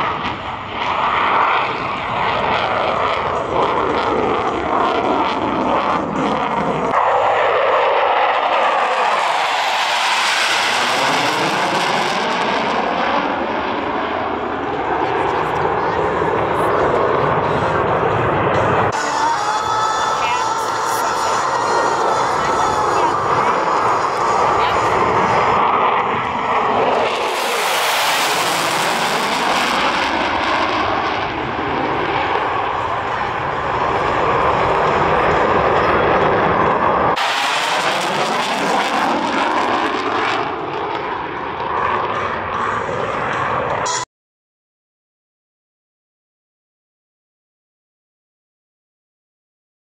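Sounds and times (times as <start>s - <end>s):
jet engine roar: 0.0s - 44.1s.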